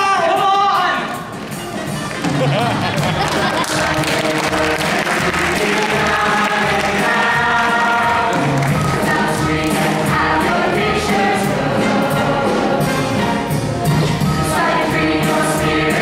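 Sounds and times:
ensemble singing in chorus: 0:03.4 - 0:16.0.

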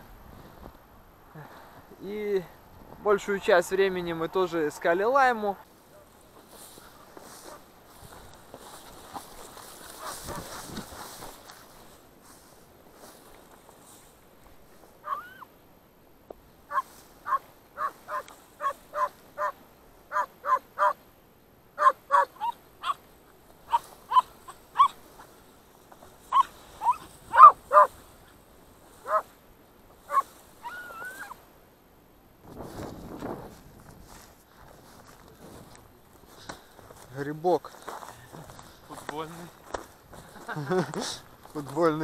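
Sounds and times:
hound barking and yelping: 0:09.1 - 0:10.6, 0:15.0 - 0:15.5, 0:16.7 - 0:21.0, 0:21.8 - 0:25.3, 0:26.2 - 0:28.0, 0:29.0 - 0:29.3, 0:30.0 - 0:31.4.

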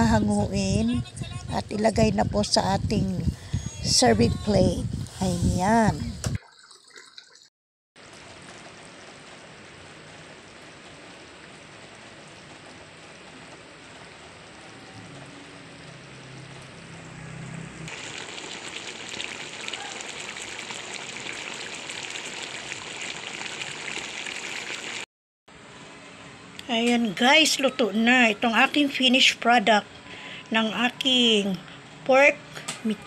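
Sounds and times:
stew simmering and crackling: 0:17.9 - 0:25.1.

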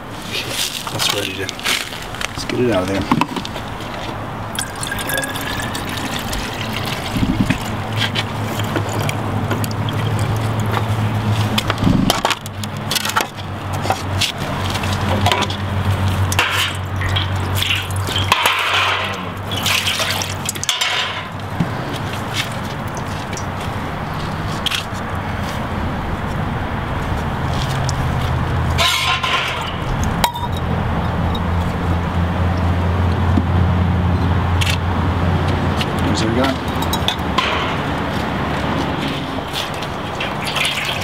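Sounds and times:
water splashing and pouring: 0:04.5 - 0:12.2, 0:16.0 - 0:23.9, 0:39.0 - 0:41.0
glass clinking: 0:04.6 - 0:07.8, 0:28.8 - 0:30.7, 0:36.7 - 0:37.9.

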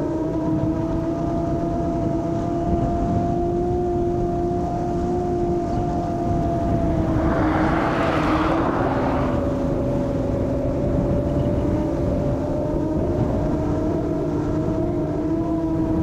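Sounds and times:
quadcopter motors humming: 0:00.0 - 0:16.0
rush of air: 0:06.4 - 0:10.4.

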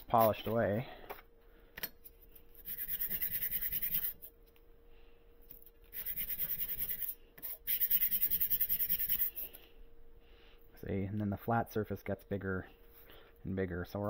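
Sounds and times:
metal plate scrubbed on sandpaper: 0:02.6 - 0:04.2, 0:05.9 - 0:09.5.

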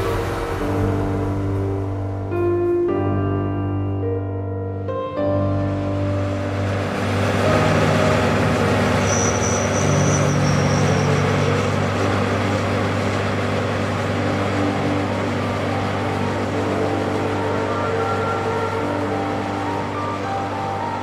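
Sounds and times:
tractor engines humming: 0:05.4 - 0:21.0
faint high whine: 0:05.8 - 0:21.0.

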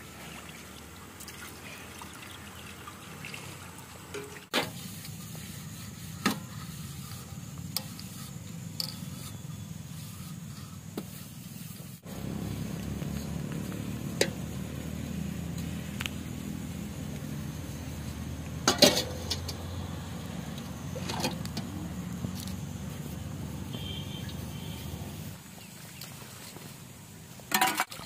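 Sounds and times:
metal utensils clinking: 0:18.7 - 0:19.6.

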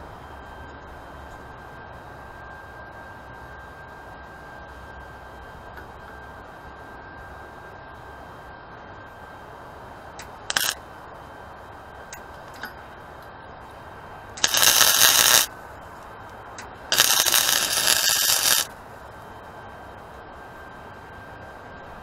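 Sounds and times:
welder crackling hiss: 0:10.5 - 0:10.8, 0:14.4 - 0:15.5, 0:16.9 - 0:18.8
welding arc strike: 0:10.5 - 0:10.8, 0:14.4 - 0:15.5, 0:16.9 - 0:18.7.

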